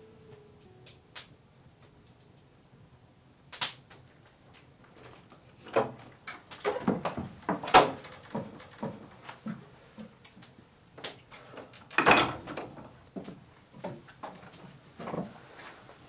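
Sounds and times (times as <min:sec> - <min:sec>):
wooden door knocking and clatter: 0:06.6 - 0:09.2, 0:12.0 - 0:13.0.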